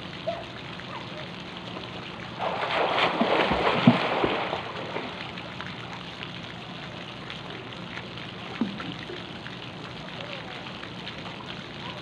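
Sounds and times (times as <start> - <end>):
water lapping: 0.2 - 12.0
swimmer splashing in water: 2.4 - 5.4.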